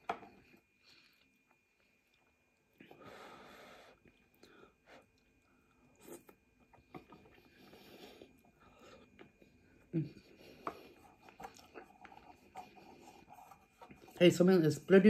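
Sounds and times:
chewing noodles: 10.8s - 14.0s.

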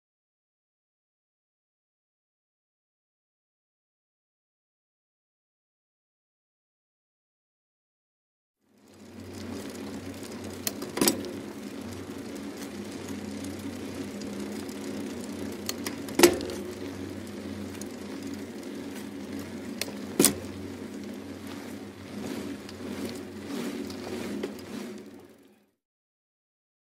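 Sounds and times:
steady low hum: 8.7s - 25.7s.

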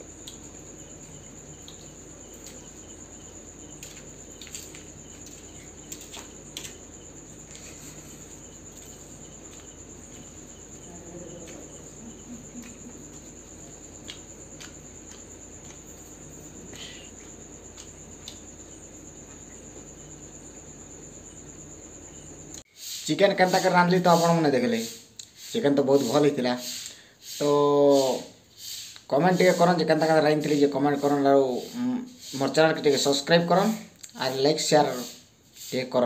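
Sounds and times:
crickets chirping: 0.0s - 36.0s.

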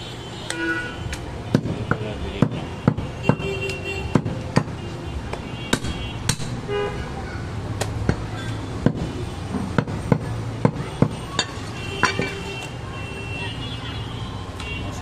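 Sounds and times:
vehicle horn toot: 0.0s - 1.1s, 3.2s - 4.2s
street background noise: 0.0s - 15.0s
cleaver chopping meat on wood: 1.5s - 3.5s, 4.1s - 6.6s, 7.8s - 11.6s.

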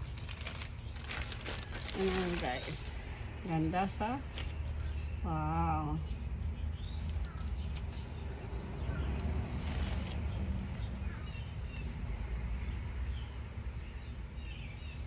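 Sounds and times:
garment rustling: 0.0s - 2.9s
small birds chirping: 0.0s - 15.0s.

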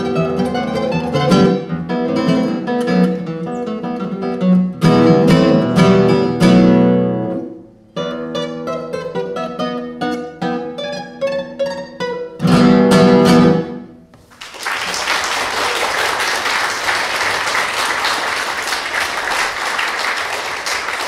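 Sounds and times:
classical guitar playing: 0.0s - 14.1s
audience applause: 14.2s - 21.0s.

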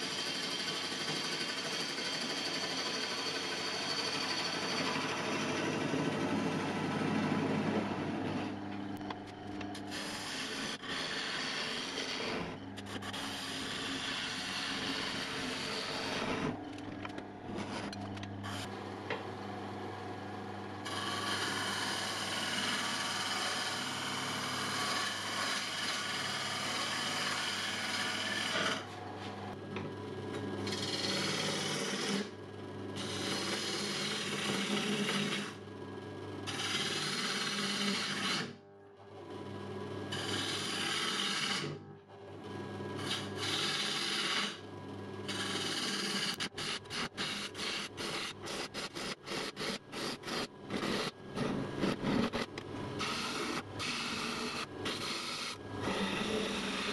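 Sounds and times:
wood lathe motor hum: 0.0s - 8.7s, 9.4s - 56.9s
gouge scraping wood: 9.9s - 16.6s, 30.7s - 32.3s, 40.1s - 41.7s, 43.0s - 44.6s, 45.3s - 56.9s.

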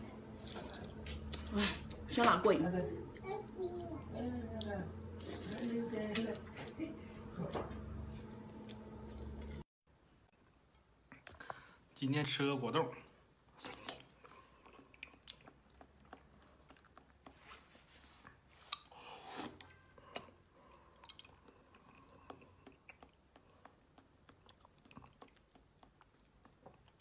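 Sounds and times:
wet chewing with clicks: 13.5s - 17.4s, 20.1s - 27.0s.

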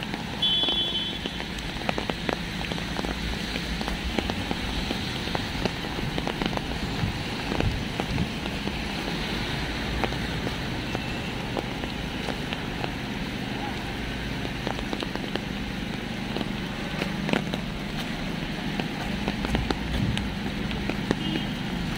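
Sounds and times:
steady rain: 0.0s - 21.9s.

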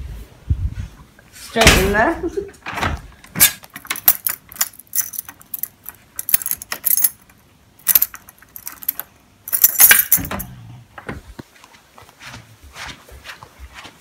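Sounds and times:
venetian blind slats clattering: 2.7s - 10.5s.

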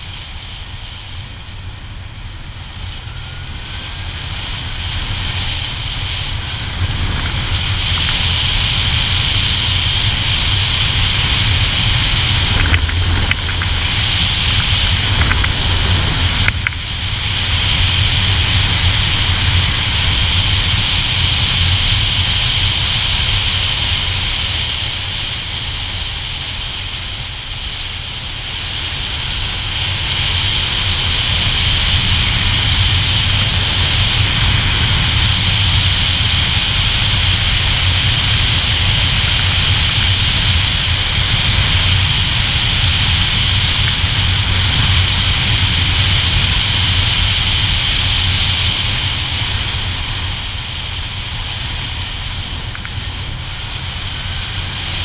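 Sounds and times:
motorcycle engine rumble: 0.0s - 55.0s
wind rushing over microphone: 0.0s - 55.0s.

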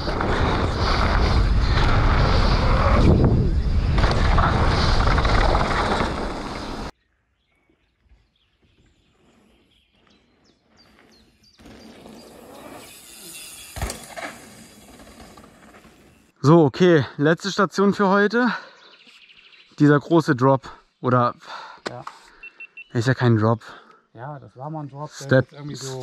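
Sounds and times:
mountain bike rattling: 0.0s - 6.9s, 10.9s - 16.3s
wind on camera microphone: 0.0s - 6.9s
low outdoor background: 0.0s - 26.0s
bird chirps: 6.6s - 14.0s, 18.6s - 23.3s.

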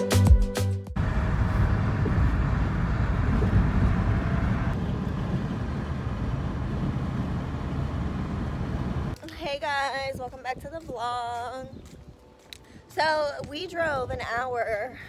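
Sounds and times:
car cabin road rumble: 1.0s - 9.2s.

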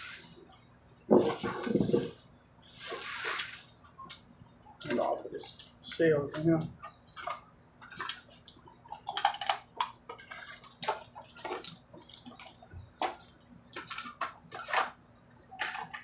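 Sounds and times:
crab shells cracking: 8.9s - 10.1s.

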